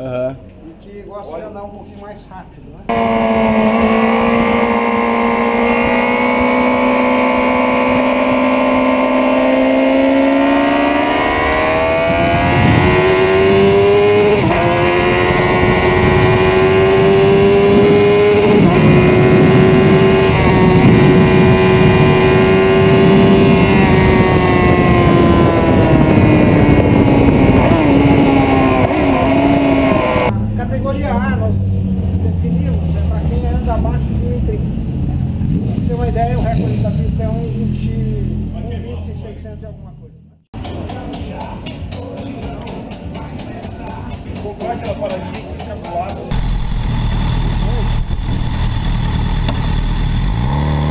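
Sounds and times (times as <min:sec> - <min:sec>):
motorcycle engine revving: 0:02.9 - 0:30.4, 0:46.2 - 0:50.9.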